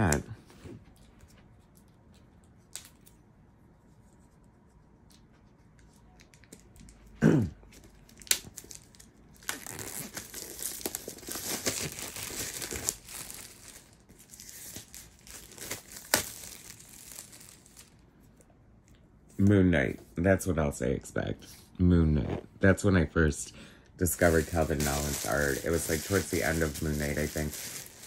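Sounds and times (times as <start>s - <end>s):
shrink wrap tearing and crinkling: 7.7s - 18.1s, 24.1s - 28.0s.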